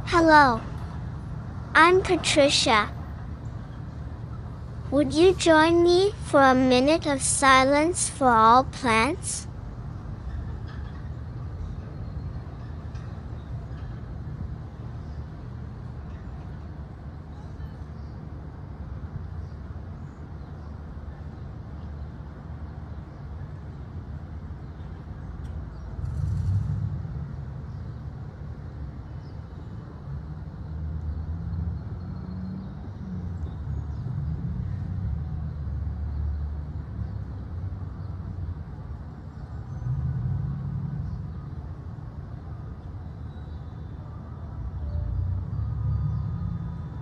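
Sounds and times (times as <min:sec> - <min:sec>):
low outdoor rumble: 0:00.0 - 0:16.7, 0:25.2 - 0:28.4.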